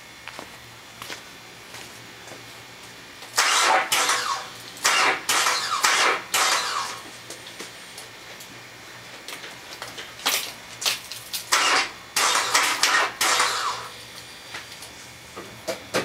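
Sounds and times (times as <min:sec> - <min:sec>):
car engine sputtering to start: 0:03.4 - 0:07.0, 0:11.5 - 0:14.0.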